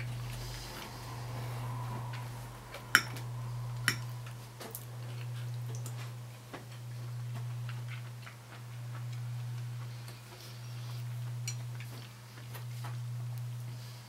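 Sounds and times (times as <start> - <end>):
steady low hum: 0.0 - 14.0
cutlery clinking on plate: 3.0 - 3.2.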